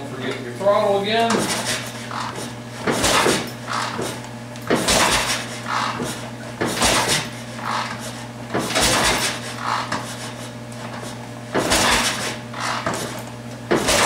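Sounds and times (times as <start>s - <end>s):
motorcycle engine cranking: 11.6s - 13.2s.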